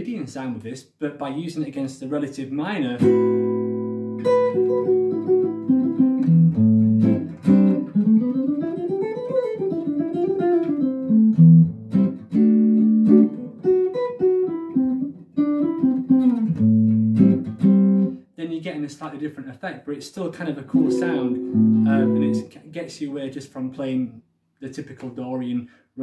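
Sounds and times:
jazz guitar chords and arpeggios: 0:03.0 - 0:18.2, 0:20.7 - 0:22.5.

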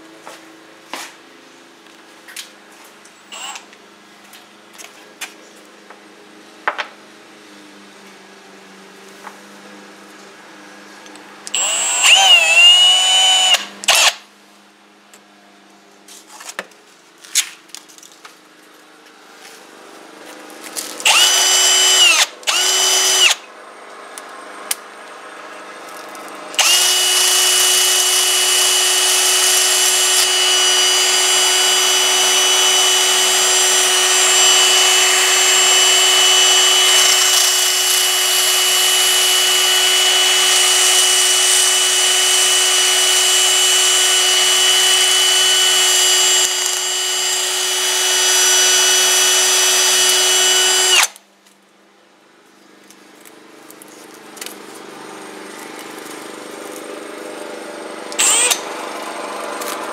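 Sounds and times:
power tool motor whining: 0:03.2 - 0:03.7, 0:11.5 - 0:14.2, 0:20.8 - 0:23.4, 0:26.2 - 0:51.2, 0:58.2 - 0:59.8.

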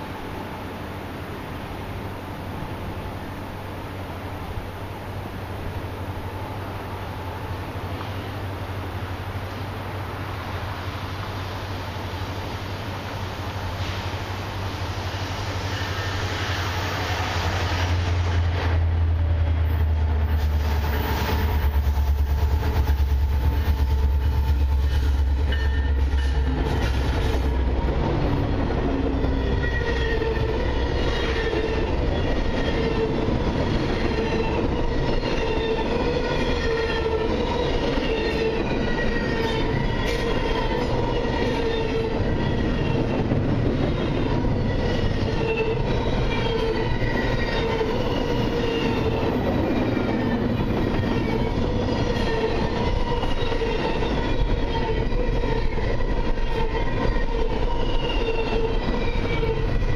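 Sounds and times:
diesel locomotive engine rumble: 0:00.0 - 0:59.9
train wheels squealing: 0:13.7 - 0:18.7, 0:19.7 - 0:27.5, 0:28.9 - 0:59.9
train wheels clicking over rail joints: 0:38.1 - 0:42.0.

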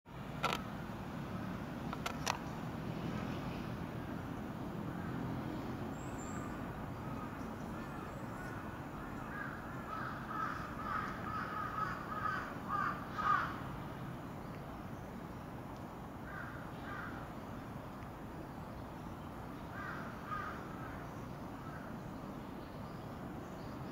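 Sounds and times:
crow cawing: 0:09.0 - 0:13.6, 0:16.3 - 0:17.2, 0:19.7 - 0:20.8.

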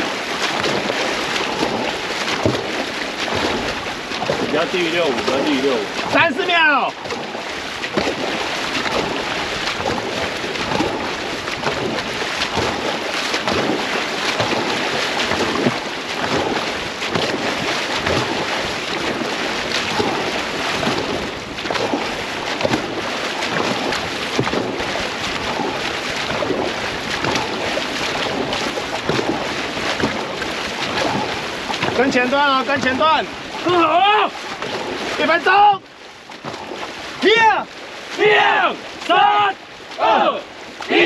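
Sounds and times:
paddles splashing water: 0:00.0 - 0:41.0
water rushing along hull: 0:00.0 - 0:41.0
wind on microphone: 0:07.0 - 0:32.1.

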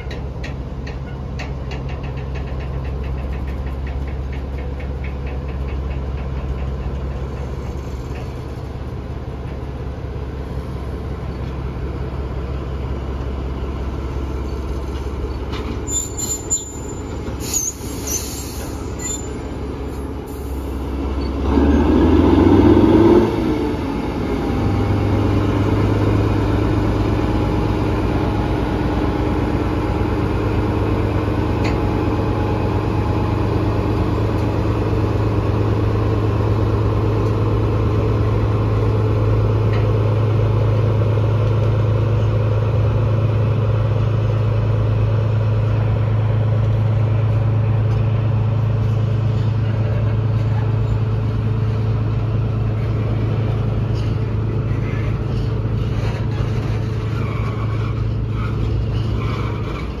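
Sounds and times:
diesel locomotive engine droning: 0:00.0 - 1:00.0
wagon wheels clicking and squealing: 0:14.3 - 0:20.6, 0:53.9 - 1:00.0.

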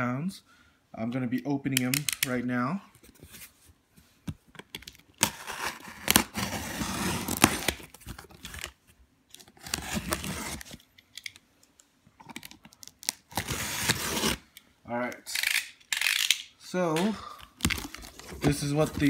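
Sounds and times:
packing tape and cardboard tearing: 0:04.8 - 0:10.9, 0:12.4 - 0:14.5.

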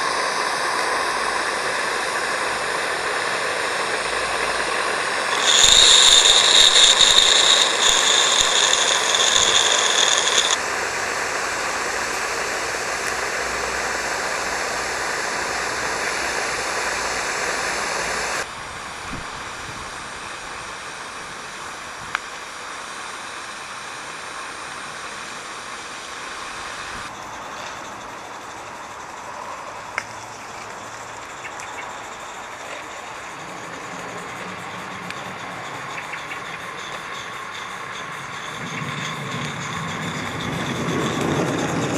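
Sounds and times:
steam locomotive hissing: 0:00.0 - 0:41.9
clicks: 0:05.2 - 0:10.6.

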